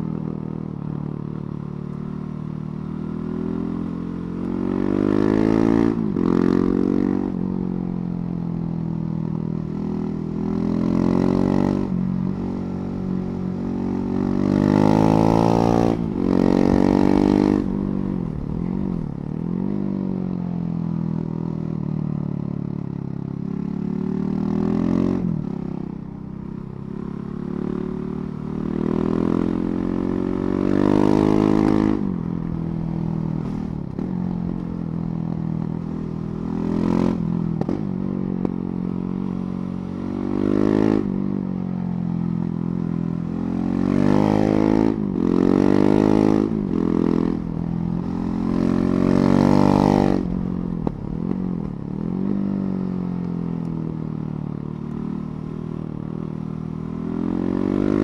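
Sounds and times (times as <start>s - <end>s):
motorcycle engine revving: 23.7s - 58.0s.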